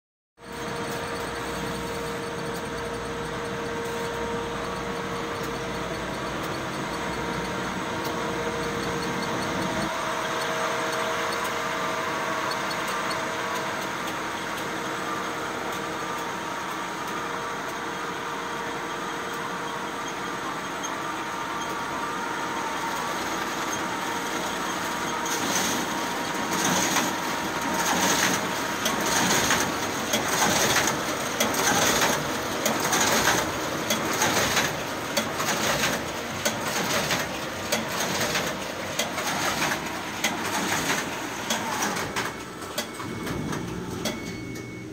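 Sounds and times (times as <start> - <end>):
booklet machine humming: 0.4 - 44.9
irregular machine clacks and knocks: 26.5 - 44.3.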